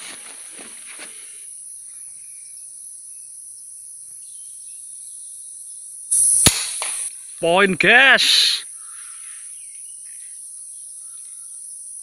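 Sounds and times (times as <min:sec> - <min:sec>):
insects droning: 0:00.0 - 0:12.0
air rifle shot: 0:06.4 - 0:07.1.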